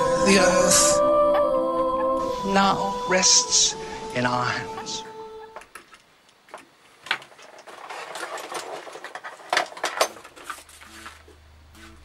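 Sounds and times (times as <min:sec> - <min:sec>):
small metal parts clicking: 0:07.2 - 0:11.2.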